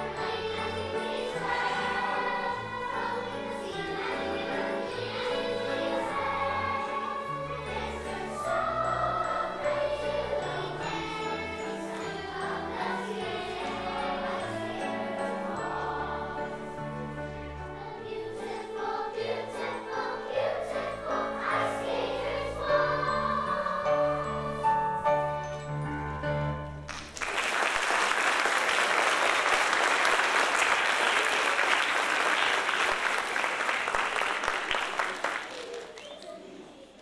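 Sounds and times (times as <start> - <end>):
children's chorus singing a carol: 0.0 - 26.6, 28.0 - 37.0.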